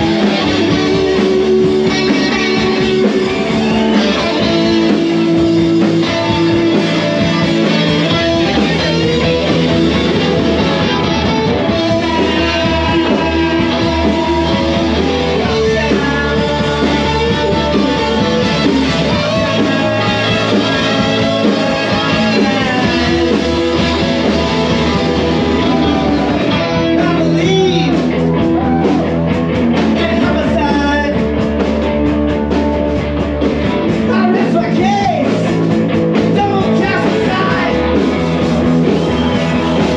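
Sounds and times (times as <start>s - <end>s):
person singing: 0.0s - 29.2s
electric guitar: 0.0s - 39.9s
live rock band playing: 0.0s - 39.9s.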